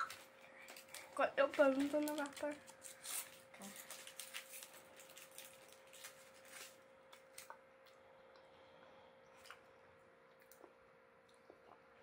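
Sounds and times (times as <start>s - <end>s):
foil wrapper crinkling: 0.0s - 7.5s
faint steady hum: 0.0s - 12.0s.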